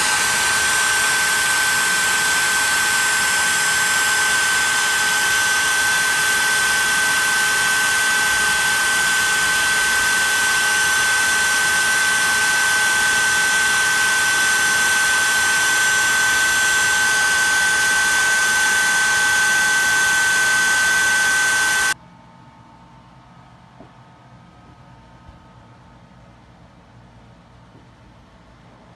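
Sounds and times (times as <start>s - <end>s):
router spindle high-pitched whine: 0.0s - 22.0s.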